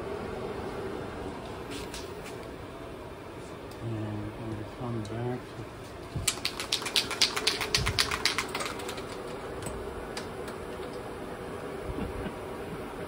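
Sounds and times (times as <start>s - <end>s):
steady hum: 0.0s - 13.0s
spray can rattling when shaken: 6.2s - 9.5s.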